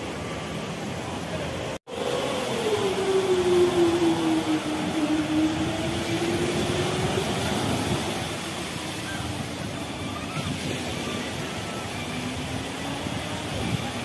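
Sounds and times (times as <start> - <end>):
surf on the shore: 0.0 - 14.0
wind: 0.0 - 14.0
passing vehicle drone: 1.9 - 9.8.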